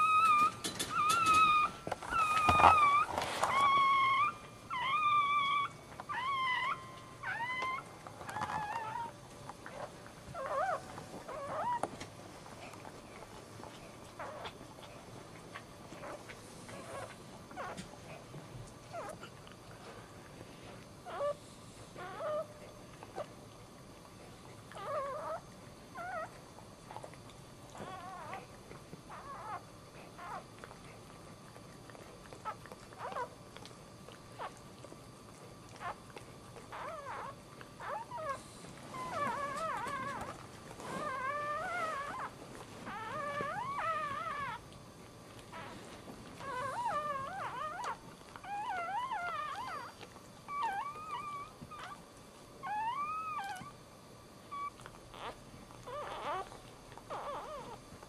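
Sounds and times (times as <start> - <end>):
puppy crying in squeaks: 0.0 - 9.1, 42.9 - 44.6, 46.4 - 49.9, 50.5 - 52.0, 52.6 - 53.7, 54.5 - 56.5, 57.1 - 57.8.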